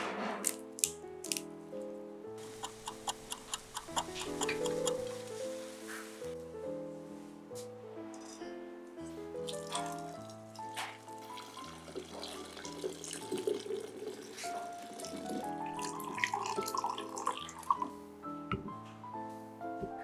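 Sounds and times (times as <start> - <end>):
background music: 0.0 - 20.0
liquid pouring and splashing: 9.5 - 17.8.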